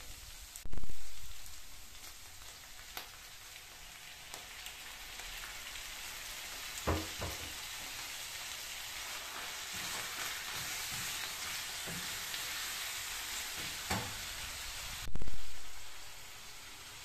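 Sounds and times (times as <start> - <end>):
meat sizzling in a frying pan: 0.0 - 17.0
wooden spoon knocking on pan: 6.8 - 7.6.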